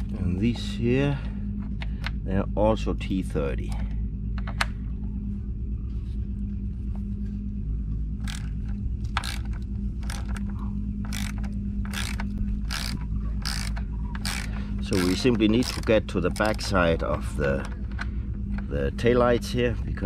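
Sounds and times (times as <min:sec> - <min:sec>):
steady low hum: 0:00.0 - 0:20.0
ratcheting driver clicking: 0:08.2 - 0:16.8.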